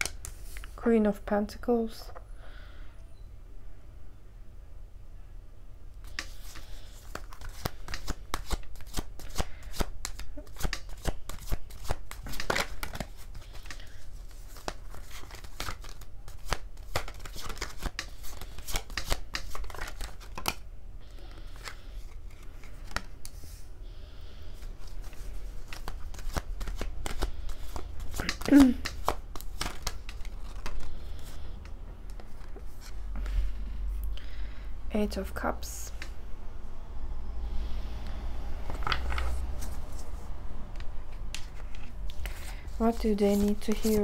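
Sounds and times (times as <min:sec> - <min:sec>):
cards being shuffled: 0:00.0 - 0:00.8, 0:06.0 - 0:20.6, 0:21.4 - 0:23.6, 0:24.6 - 0:33.5, 0:38.6 - 0:40.2, 0:40.8 - 0:44.0.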